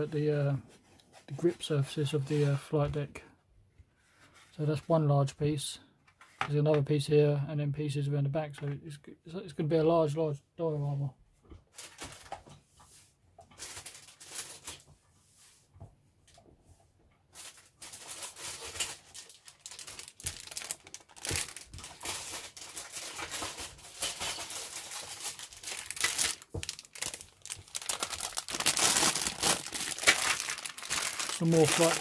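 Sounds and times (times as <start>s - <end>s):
plastic bag crinkling: 13.6s - 14.8s, 17.4s - 32.0s.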